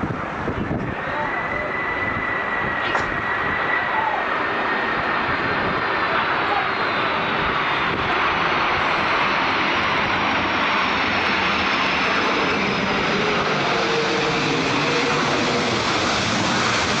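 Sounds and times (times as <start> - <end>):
jet engines roaring: 0.0 - 17.0
high whine falling in pitch: 0.6 - 5.5.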